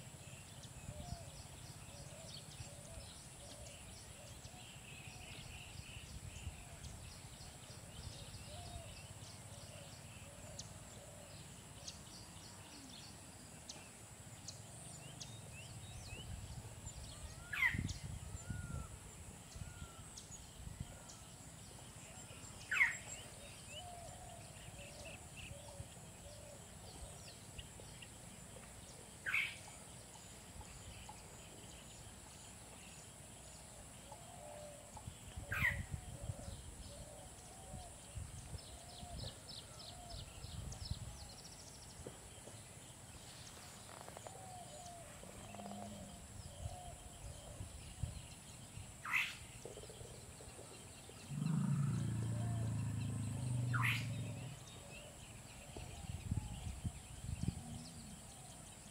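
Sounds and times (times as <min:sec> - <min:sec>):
elephant rumbling: 0:51.1 - 0:54.8.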